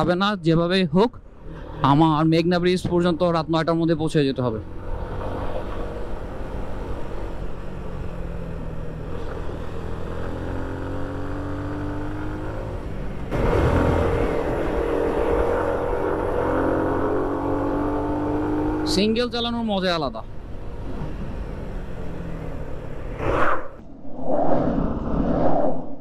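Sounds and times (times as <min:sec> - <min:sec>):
motorcycle engine accelerating: 0:07.9 - 0:19.1
wind rush: 0:23.2 - 0:26.0.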